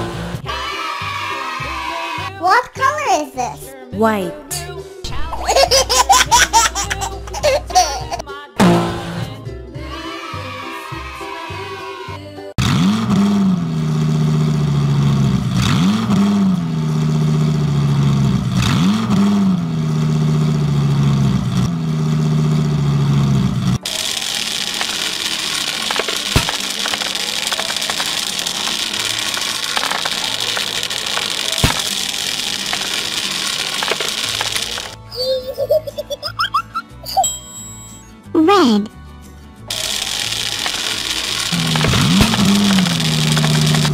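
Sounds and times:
cartoon engine revving: 12.6 - 35.6, 39.7 - 43.9.

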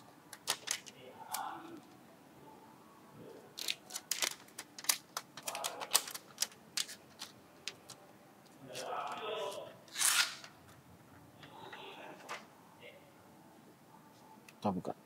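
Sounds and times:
packaging clicks and taps: 0.3 - 0.9, 3.6 - 8.0
plastic rustling: 0.3 - 1.0, 3.6 - 8.0.

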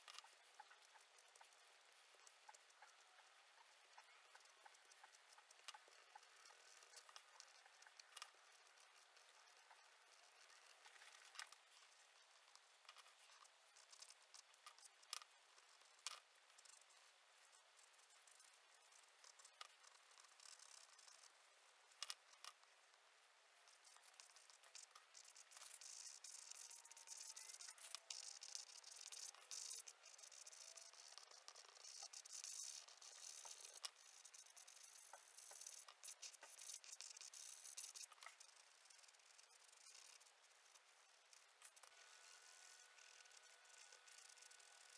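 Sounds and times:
small clicks and ticks: 0.0 - 44.9
pastel scratching on paper: 23.7 - 44.9.

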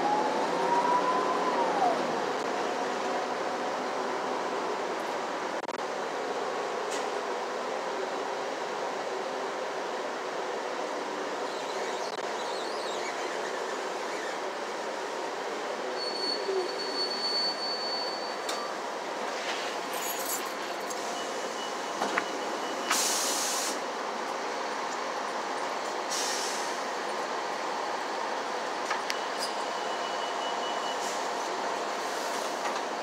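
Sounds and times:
bus interior hum and rumble: 0.0 - 33.0
short air hisses: 22.9 - 23.8, 26.1 - 26.8.

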